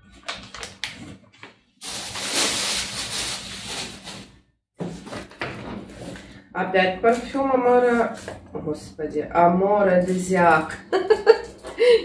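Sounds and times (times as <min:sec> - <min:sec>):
packaging rustling in cardboard box: 0:01.8 - 0:04.3.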